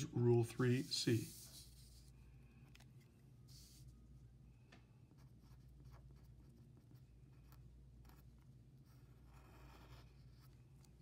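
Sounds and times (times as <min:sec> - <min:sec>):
low steady hum: 0:00.0 - 0:11.0
marker writing on paper: 0:00.6 - 0:02.0, 0:05.2 - 0:10.6.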